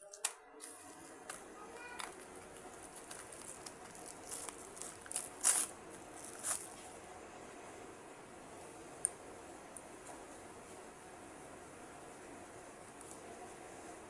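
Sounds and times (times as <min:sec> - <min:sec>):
plastic blister pack crinkling: 0:00.0 - 0:06.8.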